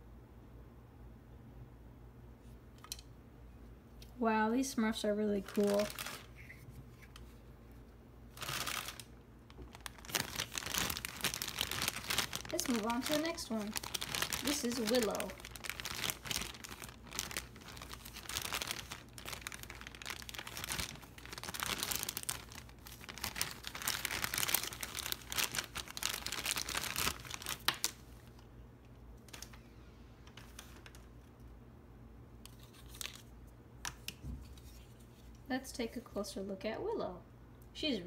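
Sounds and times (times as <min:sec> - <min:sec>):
plastic bag crinkling and tearing: 0:05.4 - 0:06.4, 0:08.3 - 0:28.5, 0:29.2 - 0:29.6, 0:32.5 - 0:33.3.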